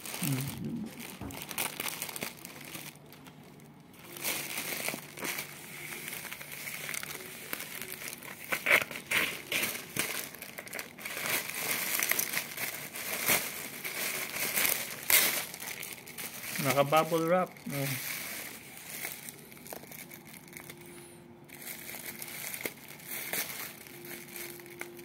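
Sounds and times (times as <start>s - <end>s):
plastic pouch crinkling: 0.0s - 25.0s
scissors cutting plastic: 6.7s - 16.1s.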